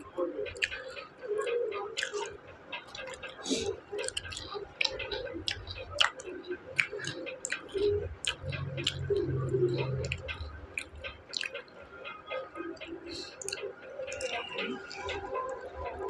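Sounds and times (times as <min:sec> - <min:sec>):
crunchy chewing: 0:02.9 - 0:11.6
wet mouth sounds: 0:06.8 - 0:11.6.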